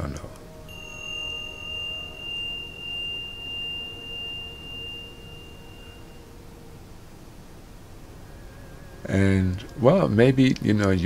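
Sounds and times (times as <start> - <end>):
singing bowl ringing: 0.5 - 9.1.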